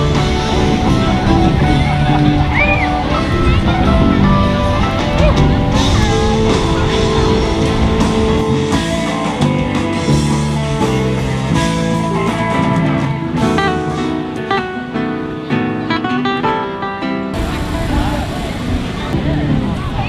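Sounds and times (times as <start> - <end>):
drum kit: 0.0 - 15.1
guitar music: 0.0 - 20.0.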